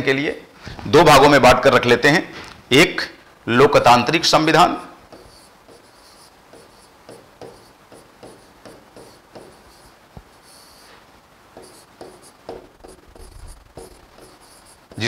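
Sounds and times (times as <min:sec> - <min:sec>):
chalk scratching on blackboard: 0:04.7 - 0:15.0
chalk tap: 0:05.1 - 0:10.9, 0:11.6 - 0:15.0.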